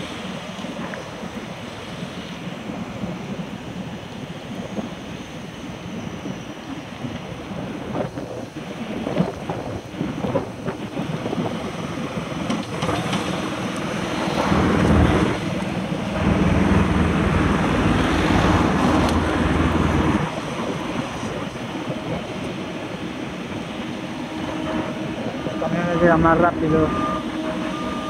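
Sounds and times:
road traffic passing: 0.0s - 5.9s, 8.5s - 28.0s
wind noise on microphone: 0.0s - 28.0s
loud vehicle engine: 12.1s - 28.0s
car passing: 12.4s - 28.0s.

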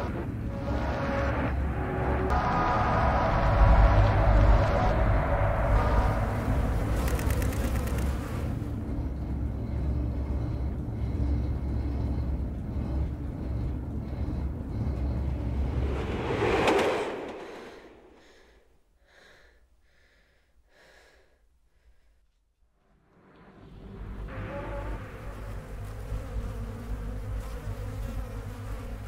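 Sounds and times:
vehicle interior rumble: 0.0s - 18.2s
loud whoosh: 15.1s - 18.5s.

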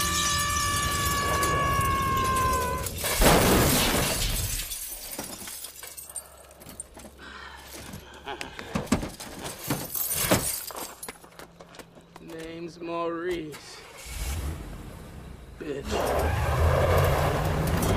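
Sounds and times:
glass shattering: 0.0s - 6.2s, 9.4s - 11.1s.

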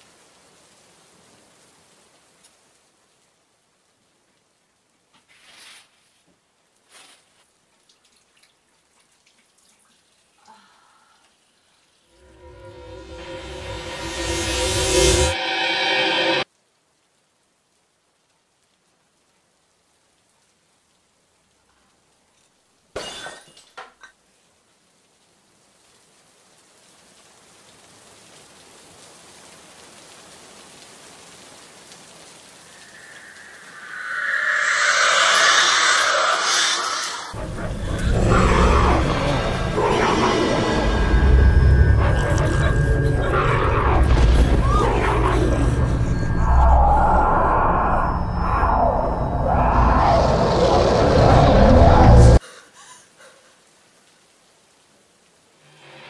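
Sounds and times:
water dripping: 7.5s - 12.2s, 26.9s - 39.8s
glass shattering: 23.0s - 24.0s
steady hiss: 24.3s - 51.4s, 52.0s - 56.0s.

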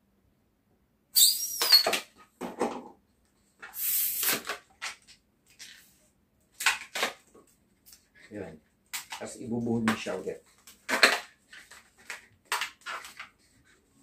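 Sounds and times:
rubber balloon squeaking: 1.2s - 2.0s
air hissing out of balloon: 3.7s - 4.5s.

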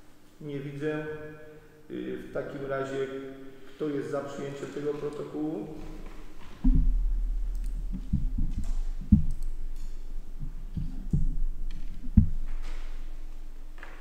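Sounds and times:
low hum: 5.6s - 14.0s
dull low thumps on microphone: 6.0s - 13.8s.

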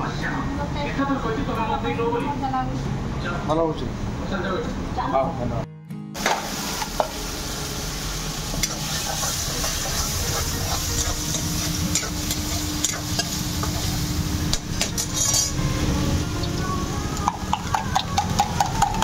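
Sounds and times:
hot oil sizzling in a pan: 6.2s - 19.0s
metal utensils clinking on pans: 8.6s - 13.9s, 14.5s - 15.6s
ladle scraping a pan: 14.8s - 15.7s.

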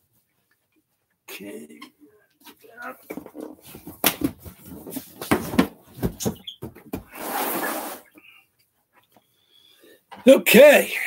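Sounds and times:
cardboard boxes knocking: 3.1s - 7.1s
box scraping onto table: 7.0s - 8.1s.

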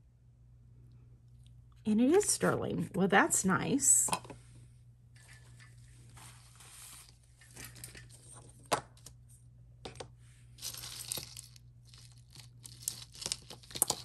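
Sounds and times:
bag rustling and crinkling: 5.7s - 8.4s, 10.5s - 14.0s
metal jewelry clinking: 10.6s - 14.0s.

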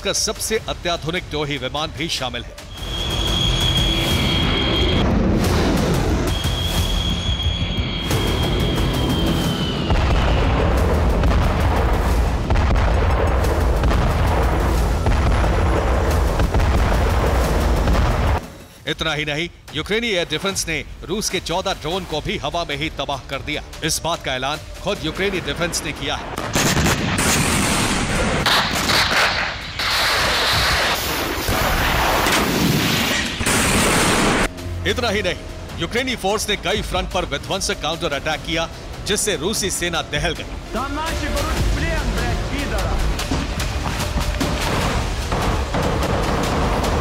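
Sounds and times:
dramatic music: 0.0s - 47.0s
explosions: 8.1s - 18.4s, 26.3s - 34.5s, 41.2s - 47.0s
explosion-like booms: 9.5s - 18.4s
gunfire: 9.9s - 18.4s, 26.4s - 34.5s, 44.4s - 47.0s.

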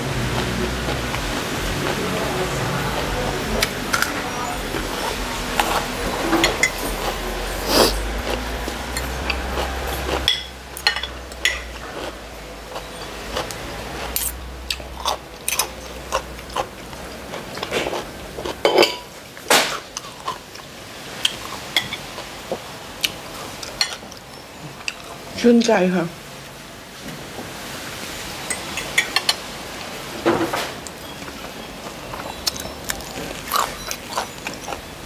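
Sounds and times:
chewing raw cucumber: 30.9s - 34.9s.

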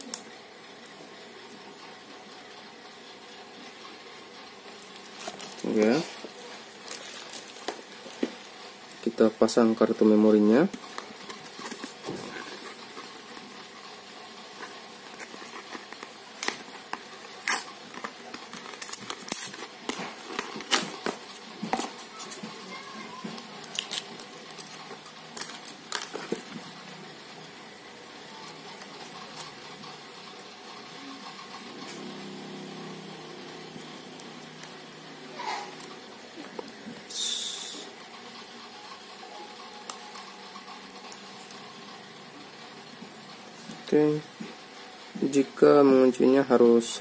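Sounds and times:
plastic packaging crinkling: 4.8s - 9.2s, 14.5s - 26.6s.

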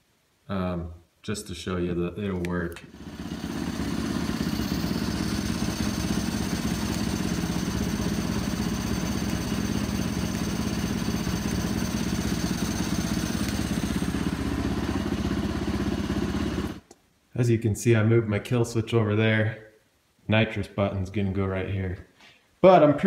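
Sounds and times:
motorcycle engine idling: 2.9s - 16.8s.

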